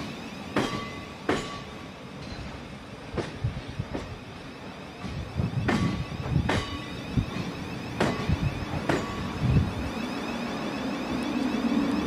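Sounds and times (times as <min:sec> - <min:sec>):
train rumble: 0:00.0 - 0:12.0
train wheels clacking over joints: 0:00.5 - 0:04.2, 0:05.0 - 0:09.4.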